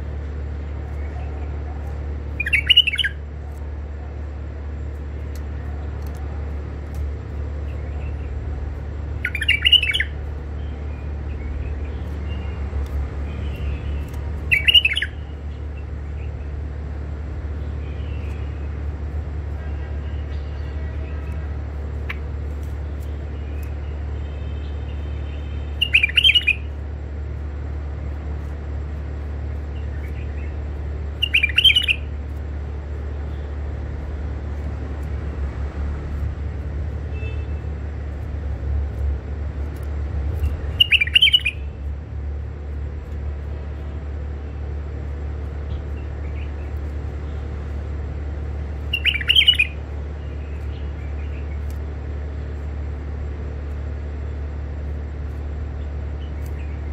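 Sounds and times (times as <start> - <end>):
steady low hum: 0.0 - 56.9
bird calls: 2.3 - 3.2, 9.2 - 16.6, 19.8 - 26.8, 29.6 - 32.2, 40.4 - 41.8, 48.8 - 51.8.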